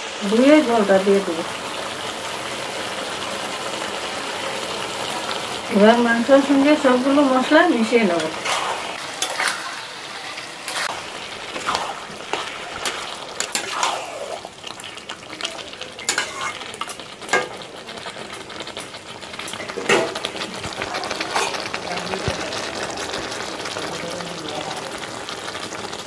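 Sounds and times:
meat sizzling: 0:00.0 - 0:26.0
spatula scraping a steel pan: 0:16.0 - 0:16.6.

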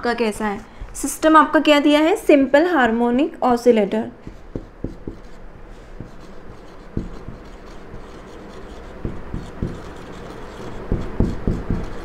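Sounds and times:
marker knocking against board: 0:04.2 - 0:05.4, 0:06.0 - 0:12.0
marker writing on whiteboard: 0:04.2 - 0:12.0.

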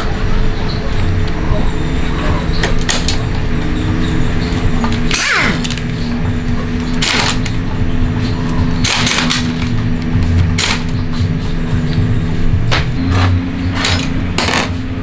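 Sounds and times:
steady background hum: 0:00.0 - 0:15.0
metal tools clanking and rattling: 0:02.3 - 0:09.9, 0:12.8 - 0:14.8.

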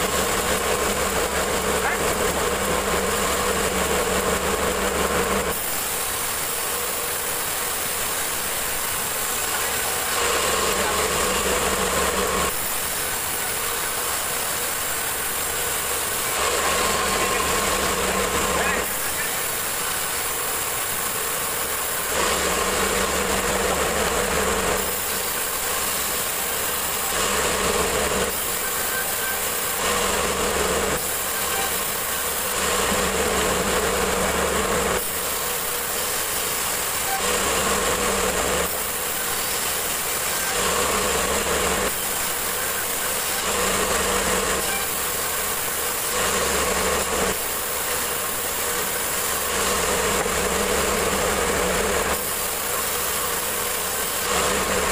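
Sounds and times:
band saw cutting wood: 0:00.0 - 0:54.9.

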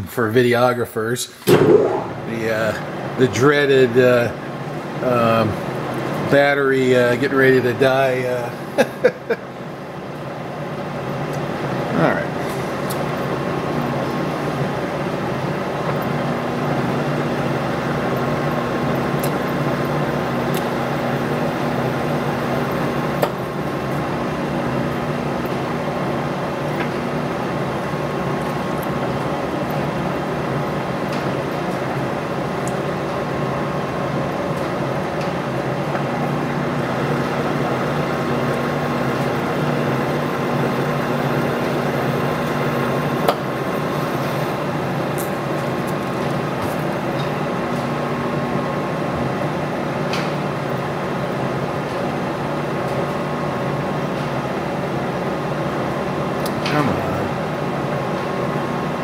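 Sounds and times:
sharp click: 0:01.4 - 0:02.4
lathe running with gear hum: 0:01.9 - 0:59.0.

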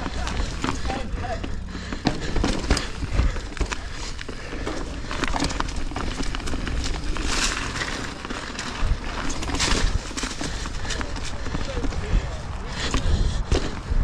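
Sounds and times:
bike clicks and rattles: 0:00.0 - 0:14.0
bike tyres on dirt and leaves: 0:00.0 - 0:14.0
wind rumble on microphone: 0:08.6 - 0:14.0.

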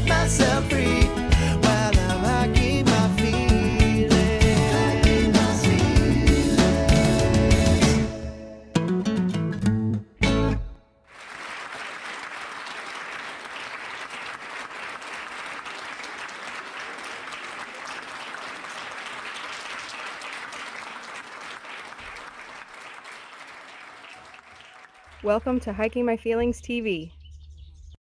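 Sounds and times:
audience applauding: 0:11.1 - 0:25.8.

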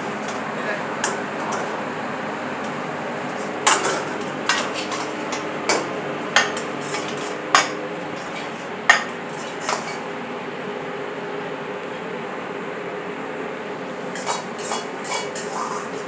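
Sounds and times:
metal ladle clanking on wok: 0:03.6 - 0:10.0.

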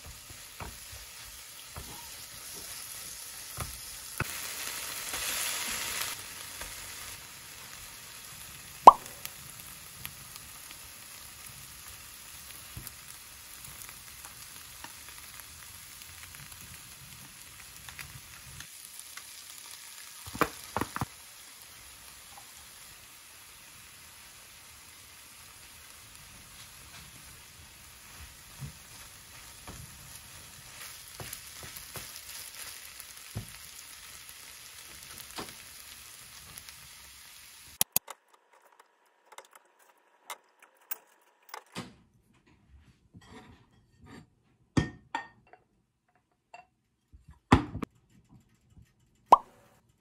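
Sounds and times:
food sizzling in a frying pan: 0:00.0 - 0:38.0.

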